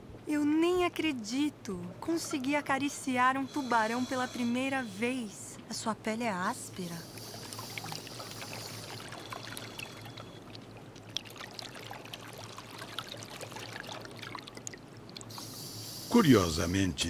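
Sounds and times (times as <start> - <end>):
underwater hiss and gurgle: 3.3 - 5.3, 6.8 - 10.8, 15.2 - 16.4.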